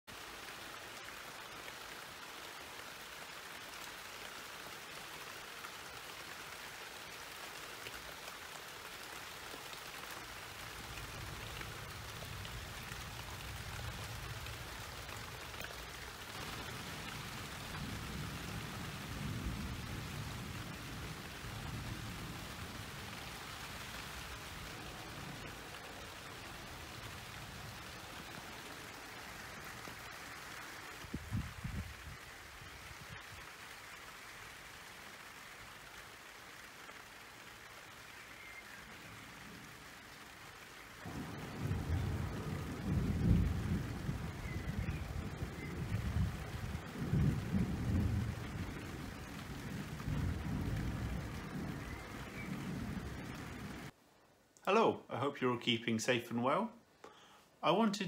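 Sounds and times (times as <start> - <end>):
steady rain: 0.0 - 58.0
thunder rumble: 10.7 - 29.6, 31.0 - 32.3, 41.0 - 53.9.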